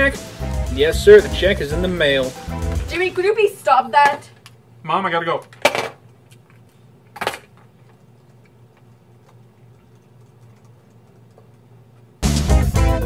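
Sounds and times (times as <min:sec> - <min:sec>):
low room hum: 0:02.5 - 0:12.2
laptop keyboard typing: 0:08.0 - 0:11.7.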